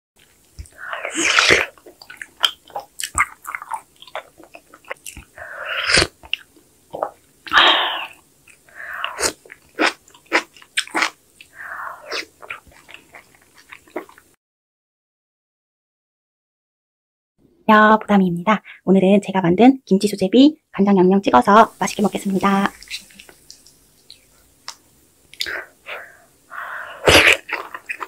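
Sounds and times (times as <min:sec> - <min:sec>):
person chewing: 0:00.2 - 0:14.3, 0:22.5 - 0:28.0
wet slurping: 0:00.6 - 0:14.2, 0:25.3 - 0:28.0.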